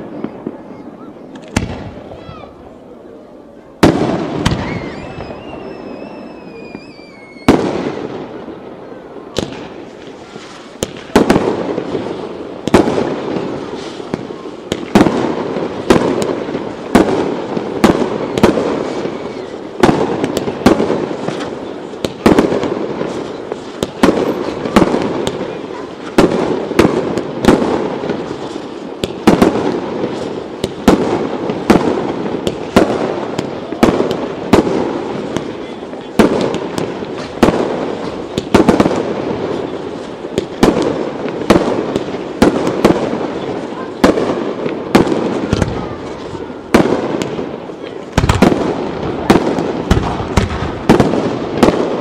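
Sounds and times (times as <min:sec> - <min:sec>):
firework bangs: 0:00.0 - 0:52.0
firework crackling: 0:00.0 - 0:52.0
firework whistles: 0:03.8 - 0:12.7, 0:13.4 - 0:15.1, 0:15.8 - 0:35.7.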